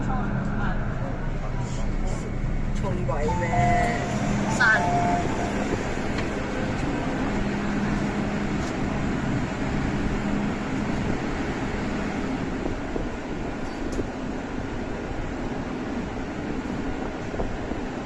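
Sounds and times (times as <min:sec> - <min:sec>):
low drone: 0:00.0 - 0:10.8
metro station rumble and hum: 0:00.0 - 0:18.0.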